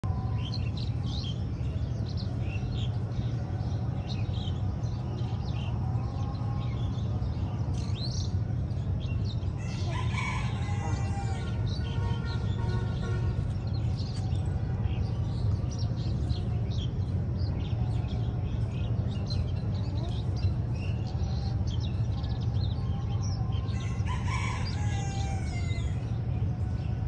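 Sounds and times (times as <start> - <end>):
small birds chirping: 0.0 - 27.0
rooster crowing: 9.6 - 11.7, 23.7 - 26.0.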